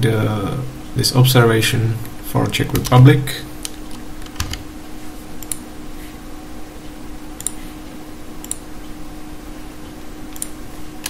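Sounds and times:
keyboard and mouse clicks: 10.3s - 10.6s.

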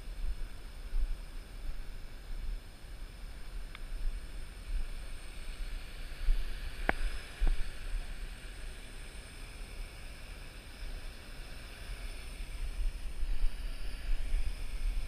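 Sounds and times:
drone motors high whine: 0.0s - 15.0s
wind rumbling on microphone: 0.0s - 15.0s.

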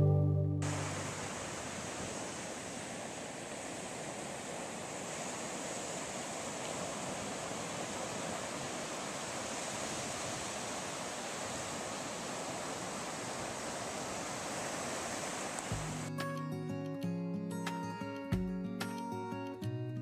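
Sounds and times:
waves washing on sandy beach: 0.6s - 16.1s.

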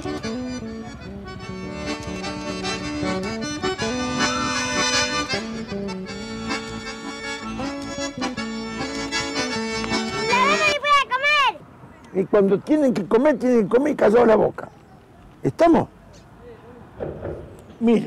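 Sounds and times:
instrumental background music: 0.0s - 10.8s.

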